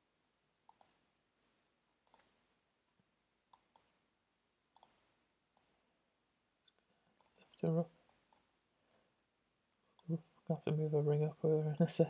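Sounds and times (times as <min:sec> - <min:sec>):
computer mouse clicks: 0:00.7 - 0:02.3, 0:03.5 - 0:03.9, 0:04.7 - 0:05.0.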